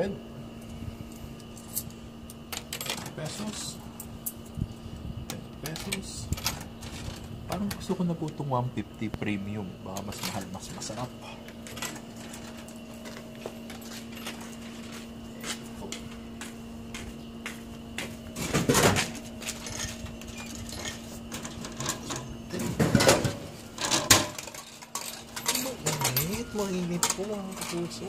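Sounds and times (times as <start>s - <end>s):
vending machine humming: 0.0s - 28.0s
coins clicking into slot: 23.8s - 28.0s.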